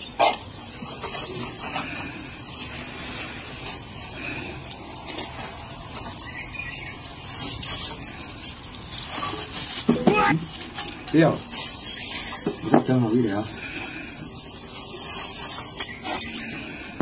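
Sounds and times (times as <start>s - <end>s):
plastic bag rustling: 0.2s - 17.0s.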